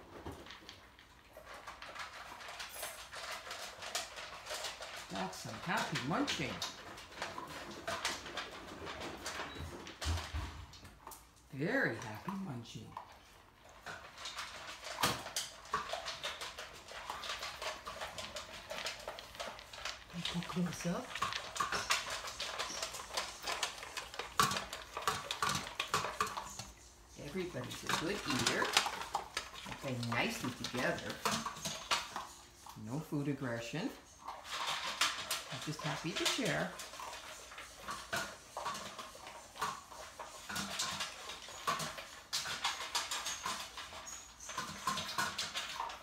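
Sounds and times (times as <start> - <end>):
dogs crunching dry kibble: 0.0 - 46.0
kibble clinking against bowl: 13.8 - 32.4, 33.9 - 46.0.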